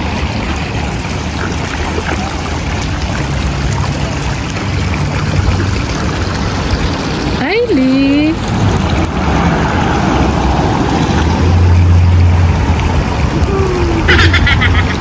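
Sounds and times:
feet wading through shallow water: 0.0 - 7.5.

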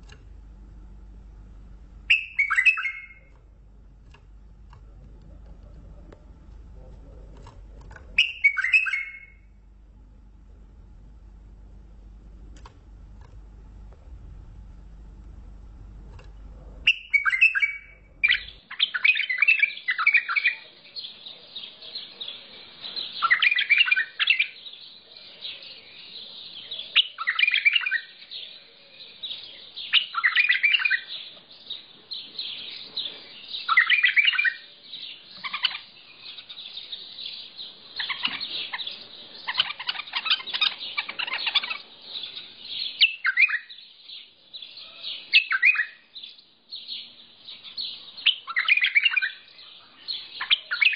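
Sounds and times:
bulbul song: 0.0 - 6.7, 7.4 - 12.2, 16.8 - 21.2
bird chirping: 1.9 - 9.7, 16.4 - 50.9.

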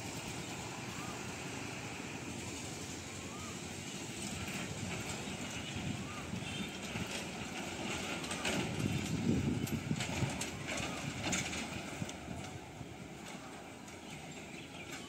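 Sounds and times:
truck engine running low: 0.0 - 15.0
truck body knocking and rattling: 6.4 - 14.2.

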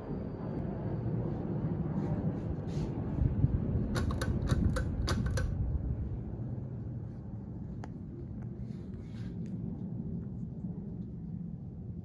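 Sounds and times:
ceiling fan air rush: 0.0 - 12.0
sharp clicks: 3.9 - 5.6.

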